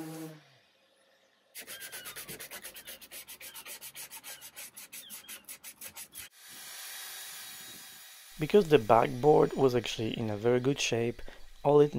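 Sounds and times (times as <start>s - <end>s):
steady hiss: 8.3s - 11.9s.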